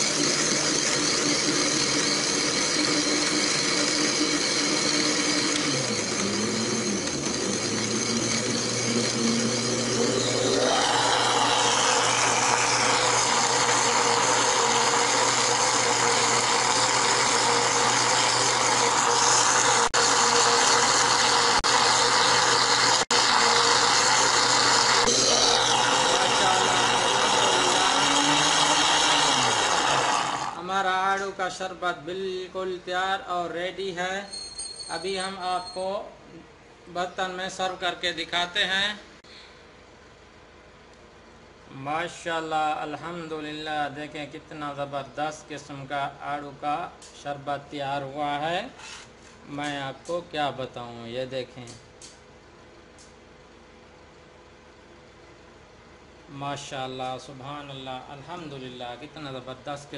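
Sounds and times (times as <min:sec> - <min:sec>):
blender motor blending ice: 0:00.0 - 0:30.9.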